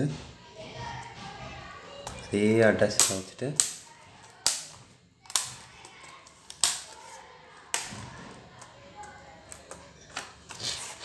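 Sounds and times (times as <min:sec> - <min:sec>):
plastic clips snapping into place: 0:02.9 - 0:03.8, 0:04.4 - 0:05.6, 0:06.5 - 0:07.0.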